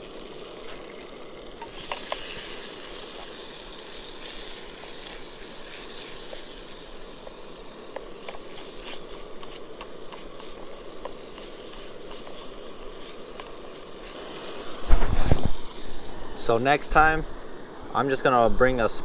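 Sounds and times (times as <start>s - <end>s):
meat and onion sizzling in a pan: 0.0s - 16.5s
spatula scraping a pan: 7.9s - 14.6s.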